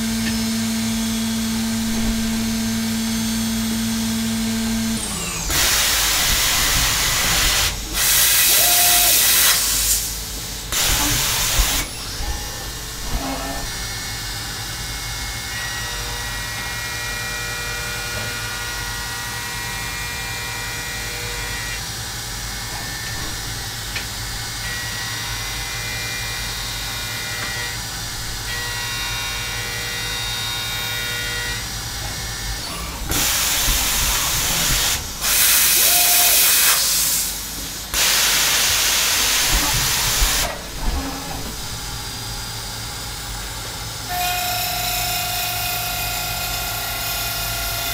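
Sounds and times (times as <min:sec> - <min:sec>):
low machine hum: 0:00.0 - 0:05.5, 0:39.2 - 0:46.2
machine spindle whine: 0:00.0 - 0:38.0
loud hissing air blasts: 0:05.5 - 0:12.0, 0:32.9 - 0:40.8.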